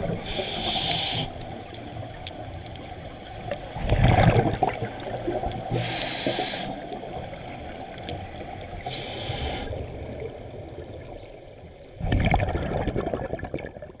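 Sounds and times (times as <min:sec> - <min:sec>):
exhaled bubbles gurgling: 0:00.0 - 0:14.0
low underwater wash: 0:00.0 - 0:14.0
regulator hissing inhales: 0:00.2 - 0:01.6, 0:05.7 - 0:06.9, 0:08.8 - 0:09.8.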